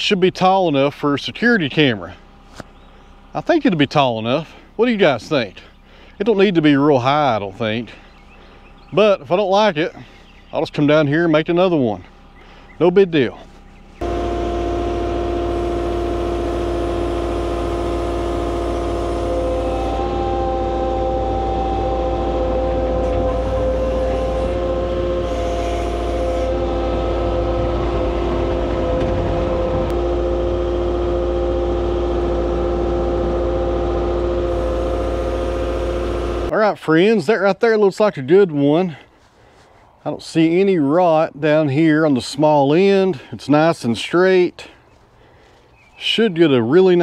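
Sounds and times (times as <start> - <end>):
diesel engine running: 0.0 - 36.5
constant whine: 0.0 - 37.2.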